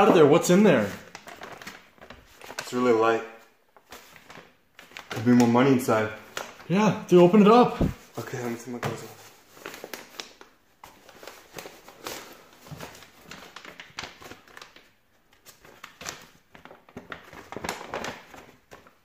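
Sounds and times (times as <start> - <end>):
paper rustling and crinkling: 0.0 - 6.7, 7.7 - 19.0.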